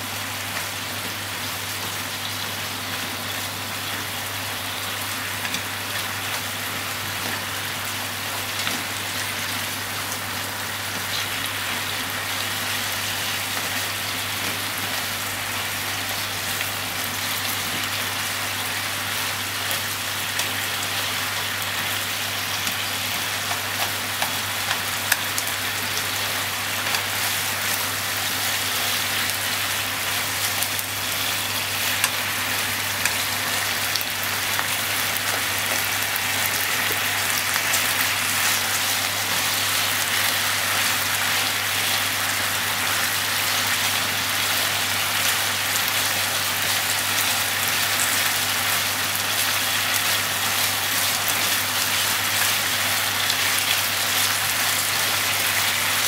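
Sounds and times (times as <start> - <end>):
meat and onion sizzling in oil: 0.0 - 56.0.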